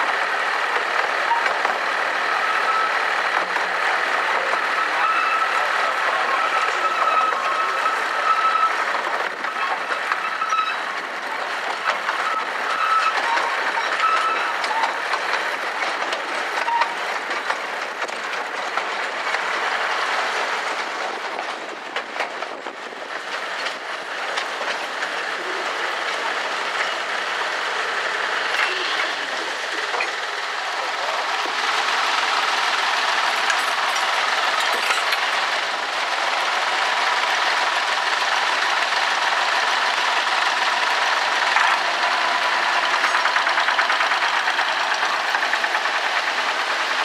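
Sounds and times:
train wheel and rail rumble: 0.0s - 47.0s
high wheel squeals: 2.2s - 3.1s, 4.6s - 11.0s, 11.8s - 15.2s, 16.6s - 17.5s
clicks over rail joints: 6.0s - 25.2s, 28.5s - 47.0s.

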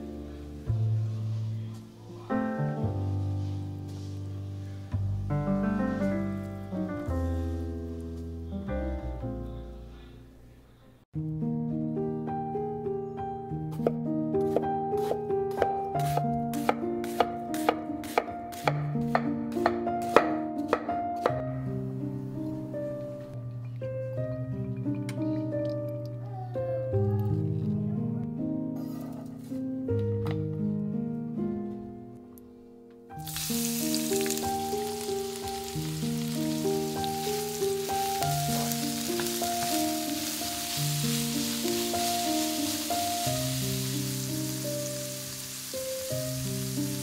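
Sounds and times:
plucked music: 11.2s - 47.0s
knife slicing onion on cutting board: 13.7s - 21.4s
onions sizzling in hot oil: 33.2s - 47.0s.

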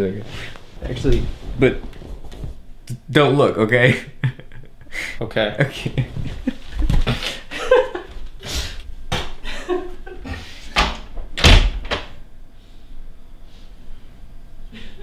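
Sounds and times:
door closing thud: 10.8s - 12.2s.

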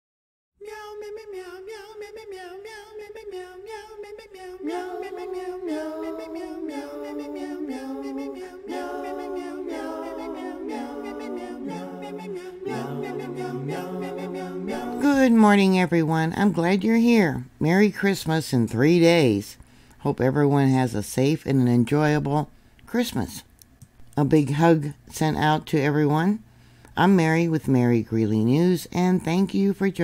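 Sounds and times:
a cappella choir singing: 0.6s - 15.6s.

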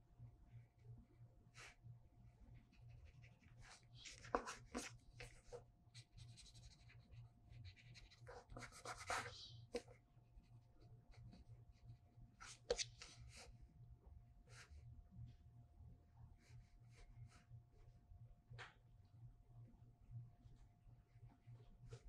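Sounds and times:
brush pen scratching on paper: 2.5s - 9.9s, 12.4s - 13.5s.

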